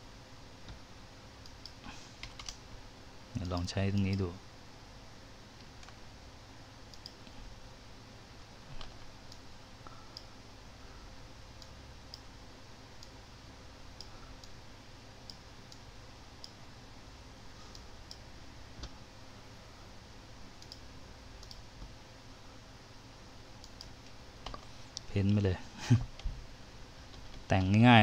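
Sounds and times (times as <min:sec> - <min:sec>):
faint low background noise: 0:00.0 - 0:28.0
computer mouse clicking: 0:01.4 - 0:02.6, 0:06.9 - 0:07.4, 0:20.6 - 0:21.9, 0:23.6 - 0:25.1.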